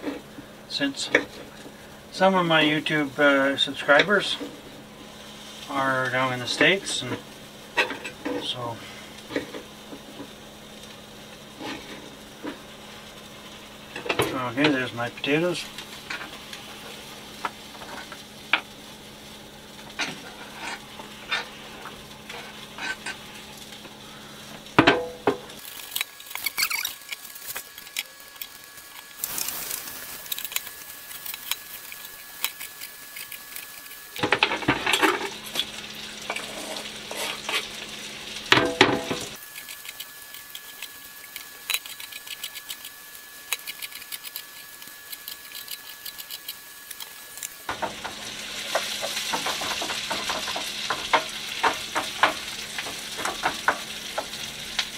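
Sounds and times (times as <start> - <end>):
vegetables sizzling in a pan: 0.0 - 43.7, 44.4 - 54.9.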